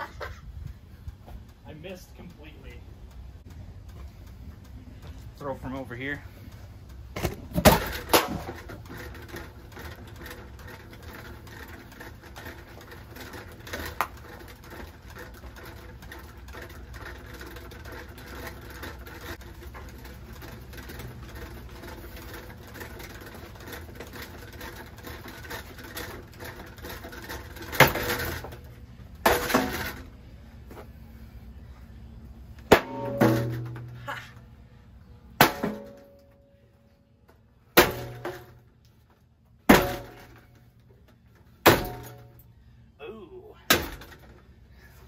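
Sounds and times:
ceiling fan humming and ticking: 0:00.0 - 0:45.0
objects hitting fan: 0:07.2 - 0:30.1, 0:32.6 - 0:34.2.

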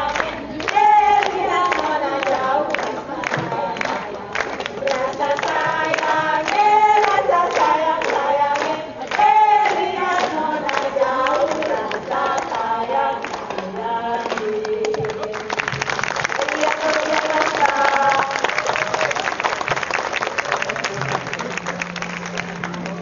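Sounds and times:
group of voices singing: 0:00.0 - 0:15.8, 0:16.4 - 0:18.8.

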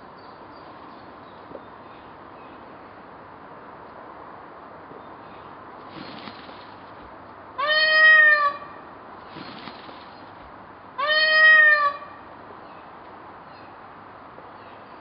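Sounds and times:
peafowl calling: 0:07.6 - 0:08.8, 0:11.0 - 0:12.2.

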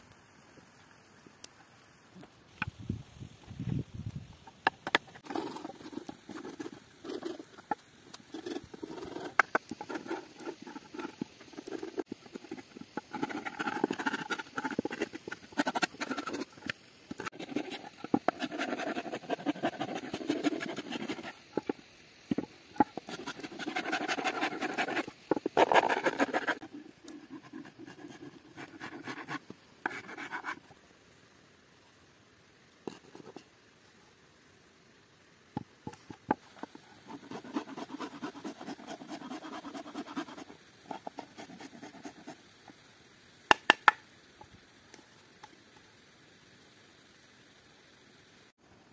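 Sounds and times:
wood rasp scraping wood: 0:08.4 - 0:21.7, 0:22.3 - 0:30.6, 0:36.6 - 0:42.3.

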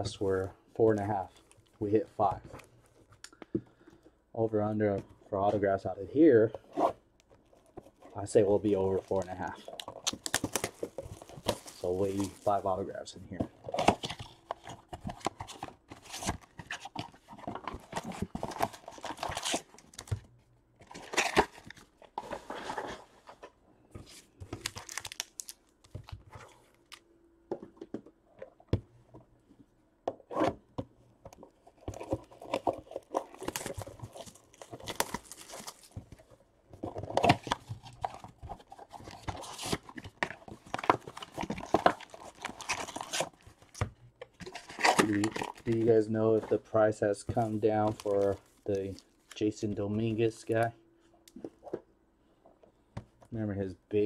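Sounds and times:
wrappers tearing and crinkling: 0:08.9 - 0:12.7, 0:24.6 - 0:25.7, 0:31.8 - 0:36.2, 0:36.9 - 0:43.8, 0:44.5 - 0:46.0, 0:47.4 - 0:49.4.

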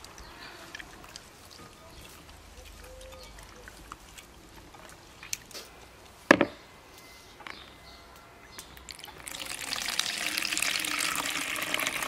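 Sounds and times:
liquid pouring in a stream: 0:08.9 - 0:12.0.

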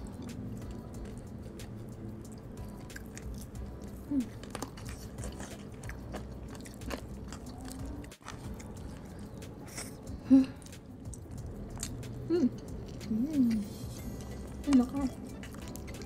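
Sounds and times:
chewing crispy food: 0:00.0 - 0:16.0
hum-like mouth sound: 0:12.0 - 0:13.7.

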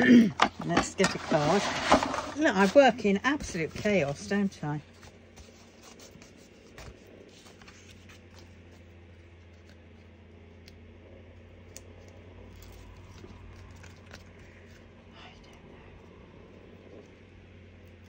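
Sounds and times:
steady low hum: 0:00.0 - 0:18.0
cards and supplies clicking and rustling: 0:00.4 - 0:10.1, 0:11.7 - 0:14.9.

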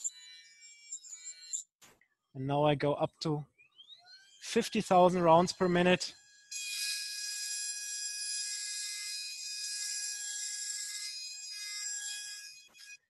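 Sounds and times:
milling spindle whining: 0:03.6 - 0:07.0.

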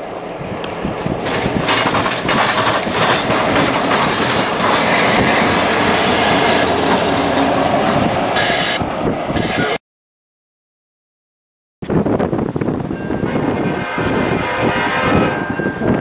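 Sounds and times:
diesel locomotive engine running: 0:00.0 - 0:09.8, 0:12.5 - 0:16.0
train wheels clacking over rail joints: 0:00.6 - 0:08.7.

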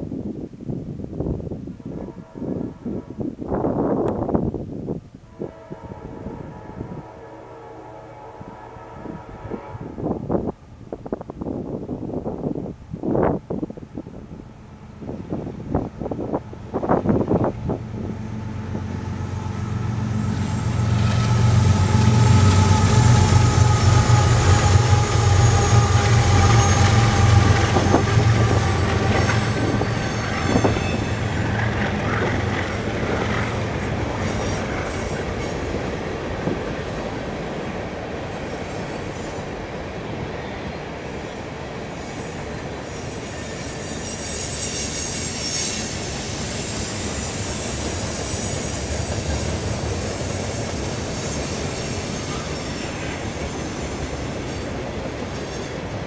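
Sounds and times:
locomotive engine drone: 0:14.3 - 0:36.4
train wheel squeal: 0:18.8 - 0:35.9, 0:36.9 - 0:56.0
train cars knocking: 0:20.5 - 0:37.0.

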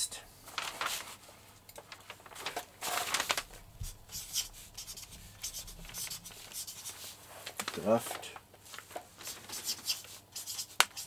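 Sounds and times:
paper rubbing under hand: 0:02.3 - 0:08.0, 0:09.1 - 0:11.0
marker pen scratching on paper: 0:03.7 - 0:07.2, 0:09.2 - 0:11.0.

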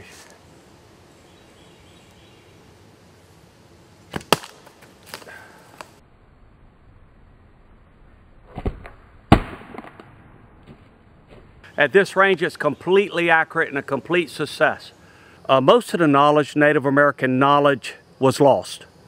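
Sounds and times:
arrow striking target: 0:04.1 - 0:05.2, 0:08.4 - 0:10.9.

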